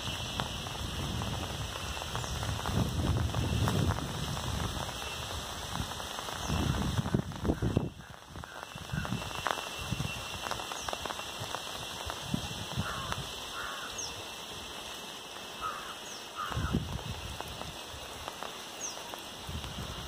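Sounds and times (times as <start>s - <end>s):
rain falling on foliage: 0.0s - 20.0s
bird calling: 7.5s - 11.3s, 12.8s - 14.4s, 15.5s - 16.8s.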